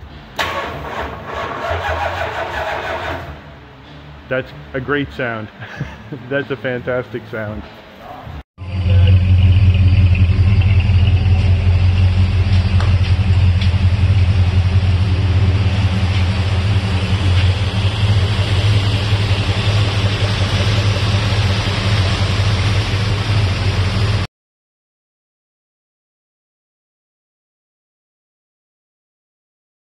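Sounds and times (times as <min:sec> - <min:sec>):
engine running with deep hum: 0:08.6 - 0:24.3.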